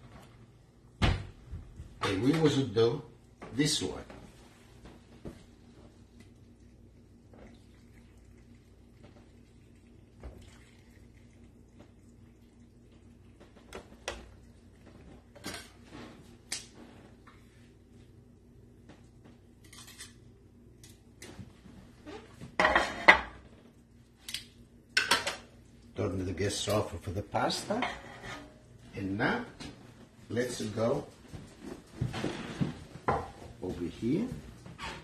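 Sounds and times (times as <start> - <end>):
faint low hum: 0.0 - 35.0.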